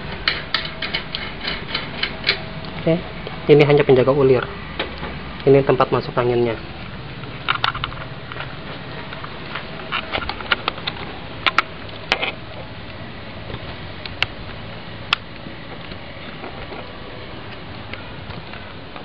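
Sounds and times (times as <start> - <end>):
metal fittings clicking and tapping: 0.2 - 2.4.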